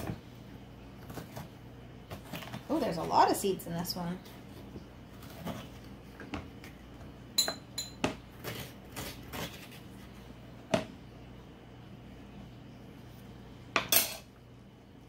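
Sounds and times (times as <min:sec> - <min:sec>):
spoon clinking: 0:07.4 - 0:08.0
metal spoon scraping squash: 0:08.4 - 0:10.0.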